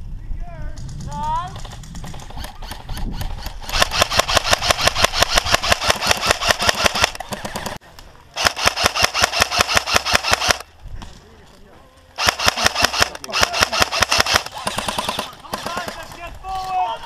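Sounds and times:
airsoft rifle rapid fire: 0:01.0 - 0:07.8, 0:08.4 - 0:10.7, 0:12.2 - 0:16.1.

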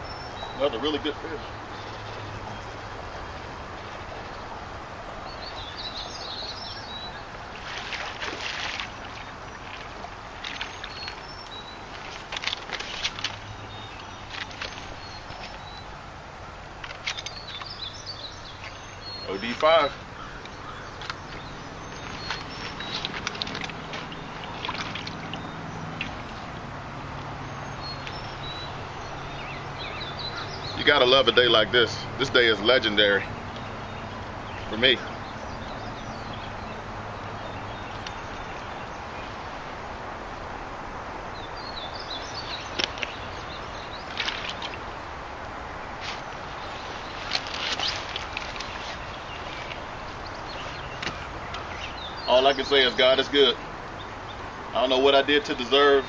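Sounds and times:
fish splashing in water: 0:07.0 - 0:16.0, 0:20.0 - 0:30.5, 0:41.2 - 0:52.0.

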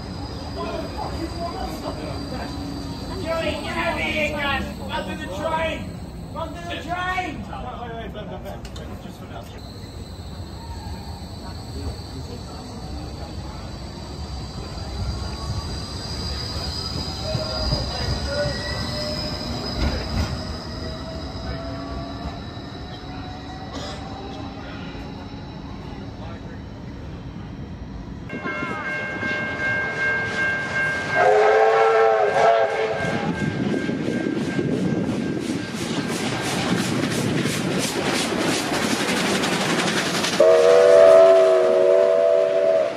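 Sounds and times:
tram motor whine rising: 0:00.0 - 0:07.0, 0:09.0 - 0:28.3
tram rumble: 0:00.0 - 0:42.9
steam locomotive exhaust chuffing: 0:29.9 - 0:42.9
loud locomotive whistle chord: 0:30.0 - 0:33.6, 0:40.4 - 0:42.9.

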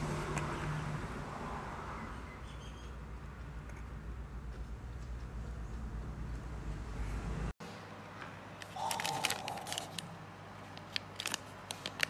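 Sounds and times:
plastic bag crinkling: 0:08.6 - 0:12.0.

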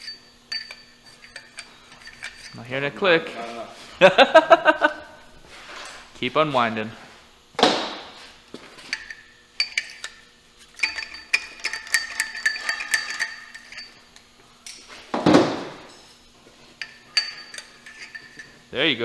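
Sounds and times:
metal tools clinking: 0:00.0 - 0:03.6, 0:08.8 - 0:15.0, 0:16.8 - 0:18.7.

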